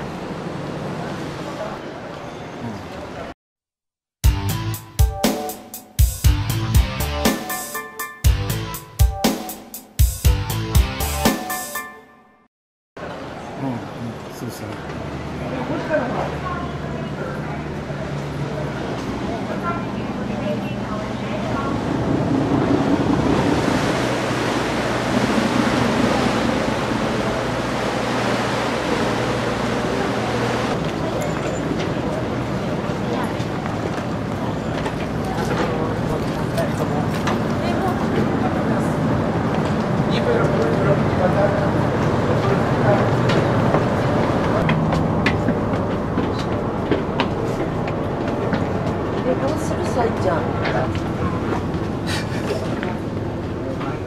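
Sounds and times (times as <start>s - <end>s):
train rumbling: 13.3s - 54.0s
low engine hum: 13.4s - 54.0s
water noise: 15.3s - 40.0s
wind rushing: 21.4s - 30.8s.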